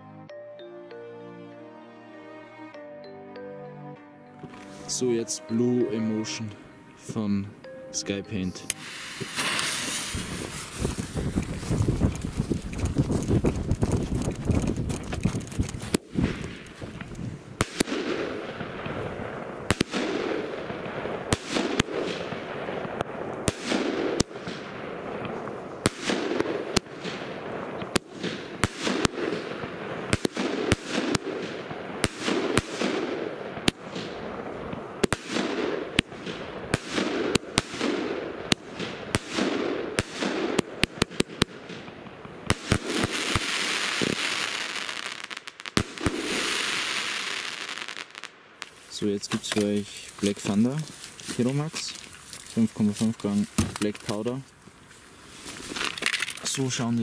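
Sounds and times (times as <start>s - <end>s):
firework hissing: 8.7s - 13.9s, 42.5s - 48.9s
firework bangs with echo: 8.8s - 13.9s, 15.8s - 48.7s.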